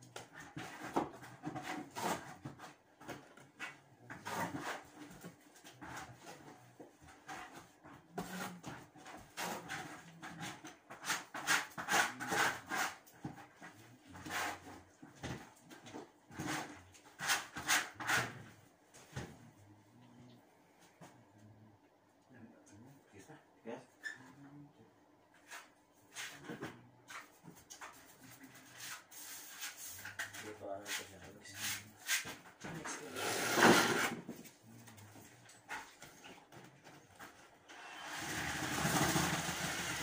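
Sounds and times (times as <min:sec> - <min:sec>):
trowel scraping ceiling: 0:08.2 - 0:13.2, 0:16.3 - 0:18.5, 0:27.1 - 0:34.3, 0:37.7 - 0:40.0.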